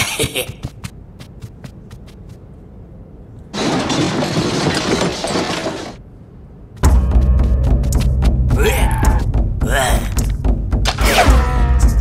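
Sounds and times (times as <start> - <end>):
small running footsteps: 0.0 - 2.6.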